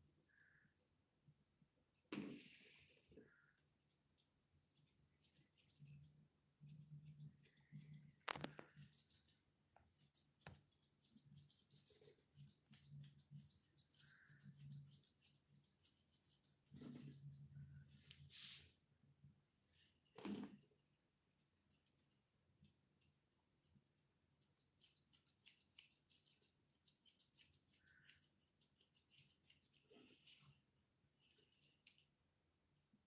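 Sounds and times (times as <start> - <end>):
scissors snipping hair: 3.6 - 17.3, 21.4 - 29.9.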